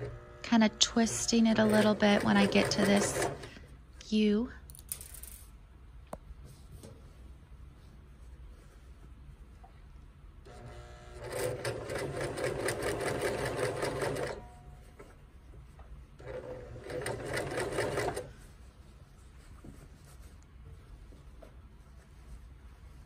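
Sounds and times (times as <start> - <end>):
sewing machine stitching: 0.9 - 3.6, 10.5 - 14.5, 16.2 - 18.3.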